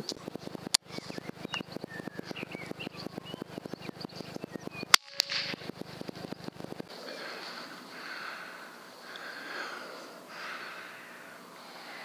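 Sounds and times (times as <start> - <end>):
fast even ticking: 0.0 - 6.9
birds chirping: 0.0 - 12.0
rifle shot: 4.9 - 5.7
sharp click: 4.9 - 5.7.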